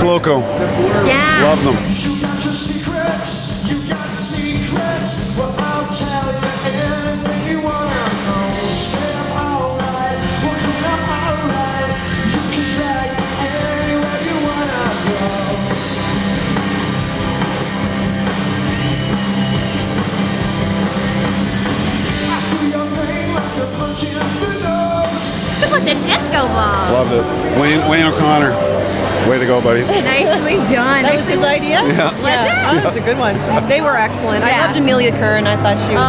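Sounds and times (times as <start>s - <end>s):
electric guitar: 0.0s - 36.0s
acoustic guitar: 0.4s - 36.0s
person singing: 0.7s - 15.8s, 22.2s - 28.7s, 29.8s - 33.0s.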